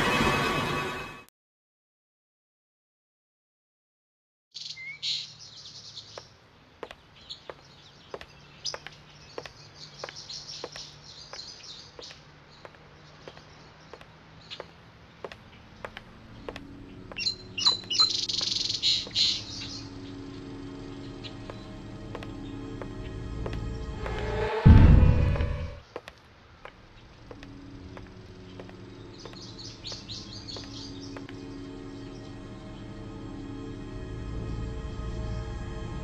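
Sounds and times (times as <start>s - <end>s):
small birds chirping: 4.6s - 23.9s, 25.8s - 33.0s
low music drone: 16.2s - 25.8s, 27.4s - 36.0s
footsteps: 21.4s - 31.4s.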